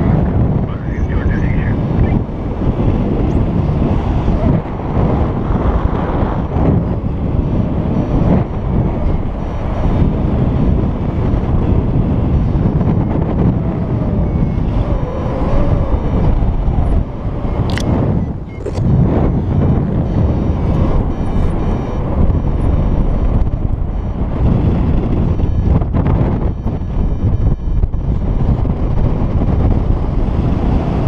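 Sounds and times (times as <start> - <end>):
wind buffeting microphone: 0.0 - 31.0
sharp click: 17.7 - 17.9.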